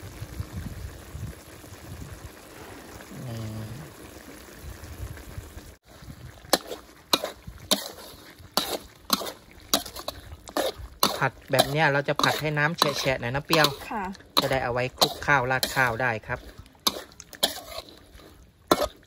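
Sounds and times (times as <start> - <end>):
soft sizzle from pan: 0.0 - 19.0
spatula scraping a metal wok: 6.4 - 19.0.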